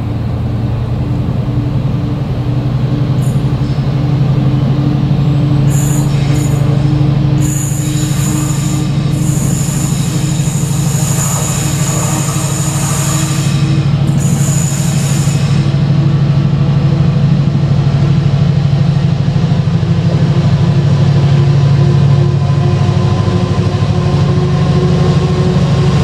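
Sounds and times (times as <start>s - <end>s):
diesel locomotive engine drone: 0.0s - 26.0s
high-pitched wheel squeal: 5.3s - 15.8s.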